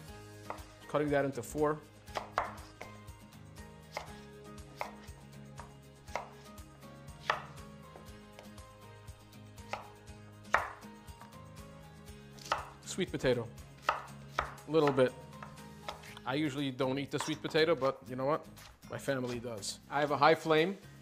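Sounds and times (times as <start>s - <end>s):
knife cutting onto wooden board: 2.1s - 3.0s, 3.9s - 6.5s, 7.2s - 8.5s, 9.7s - 9.9s, 10.5s - 11.3s, 12.4s - 12.8s, 13.8s - 16.2s.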